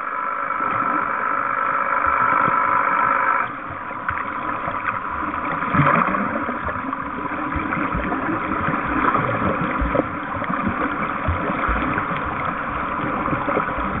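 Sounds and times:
underwater hum: 0:00.0 - 0:14.0
rushing water: 0:03.6 - 0:14.0.

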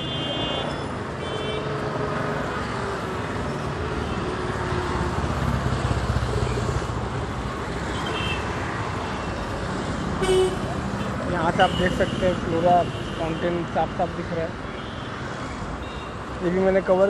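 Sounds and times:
car engines passing: 0:00.6 - 0:14.6.

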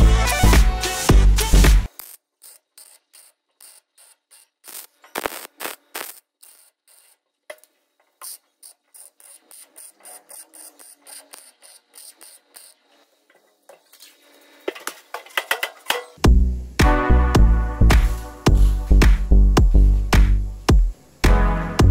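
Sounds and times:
background music: 0:00.0 - 0:01.9, 0:16.2 - 0:21.9
arc welder crackling: 0:01.5 - 0:20.9.

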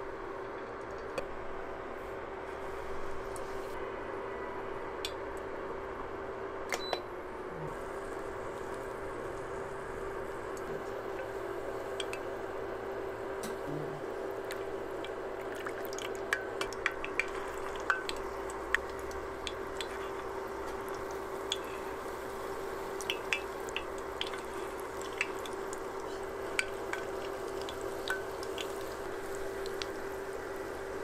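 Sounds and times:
food deep-frying in hot oil: 0:07.7 - 0:31.0
oil pops and crackles: 0:23.0 - 0:30.0.

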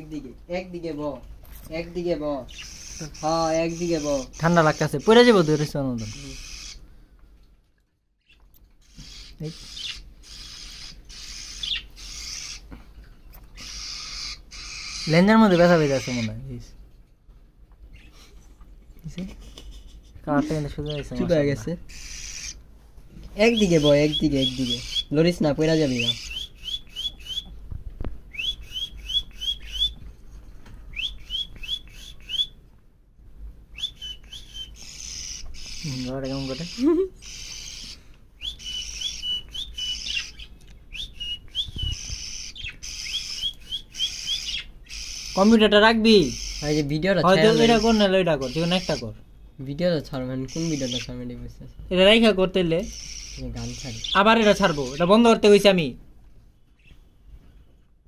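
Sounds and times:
budgerigar chirping: 0:02.5 - 0:06.8, 0:08.3 - 0:12.7, 0:13.6 - 0:16.4, 0:20.4 - 0:22.6, 0:23.4 - 0:27.6, 0:28.3 - 0:30.0, 0:30.9 - 0:32.6, 0:33.7 - 0:49.1, 0:50.4 - 0:51.2, 0:52.2 - 0:55.4
chick raspy hissing calls: 0:08.8 - 0:12.7, 0:13.6 - 0:15.2, 0:21.9 - 0:22.6, 0:33.9 - 0:40.3, 0:52.8 - 0:55.0.

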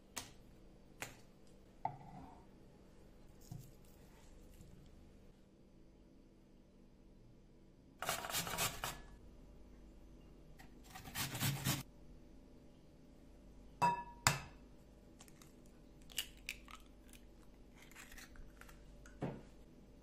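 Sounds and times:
onion rasping on box grater: 0:08.0 - 0:09.0, 0:10.9 - 0:11.8.

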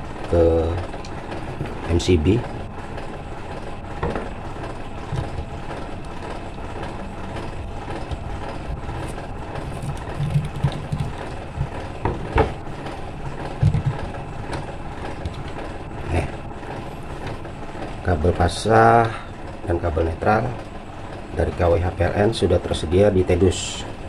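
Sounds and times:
low background rumble: 0:00.0 - 0:18.9
screwdriver knocks and clicks: 0:09.8 - 0:12.6.

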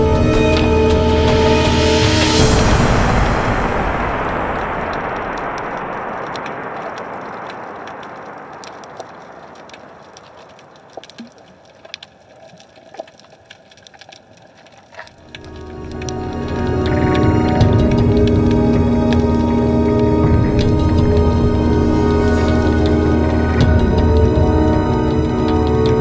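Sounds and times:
music: 0:00.0 - 0:05.2, 0:15.2 - 0:26.0
broad rushing noise: 0:00.0 - 0:11.5
underwater clicks and crackles: 0:06.2 - 0:26.0.

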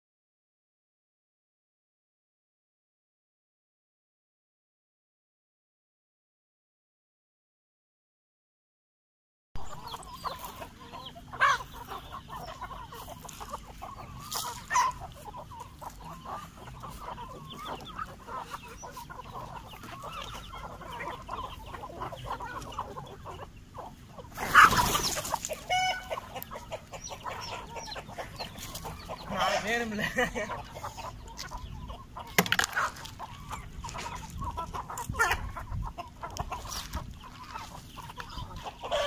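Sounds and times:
chickens clucking: 0:09.6 - 0:39.0.

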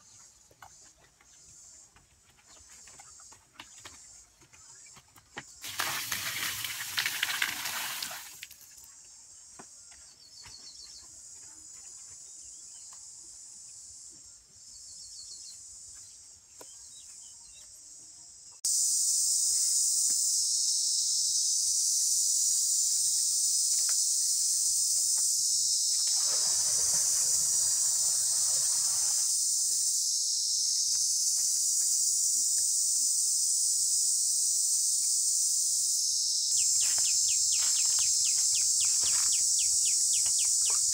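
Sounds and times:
water splashing into mud pit: 0:05.6 - 0:08.6, 0:25.9 - 0:29.4
high-pitched insect drone: 0:18.7 - 0:40.9.

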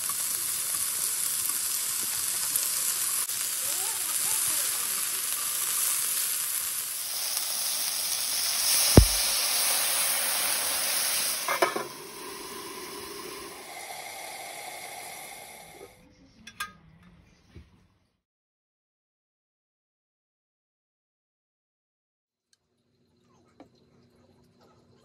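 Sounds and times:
meat sizzling in oil: 0:00.0 - 0:15.8
chopsticks tapping a pan: 0:09.0 - 0:09.3
knocks on a pan: 0:09.0 - 0:09.3.

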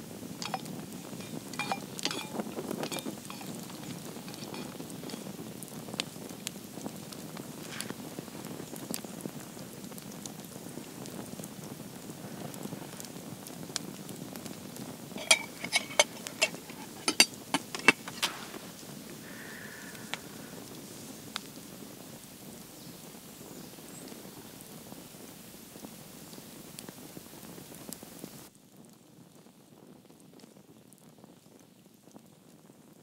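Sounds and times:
campfire crackling: 0:00.0 - 0:32.6
sharp metallic clinks: 0:00.4 - 0:05.2, 0:15.2 - 0:18.5.

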